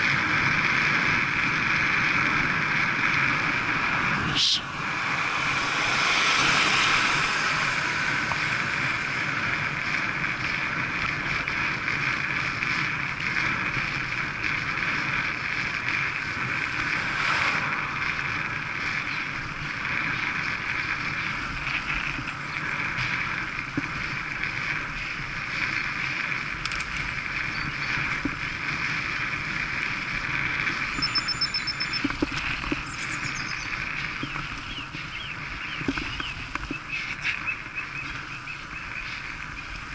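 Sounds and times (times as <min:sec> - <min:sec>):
bike tyre hum on tarmac: 0:00.0 - 0:39.9
wind rushing over microphone: 0:00.0 - 0:39.9
car passing close: 0:03.3 - 0:09.7, 0:15.7 - 0:20.7.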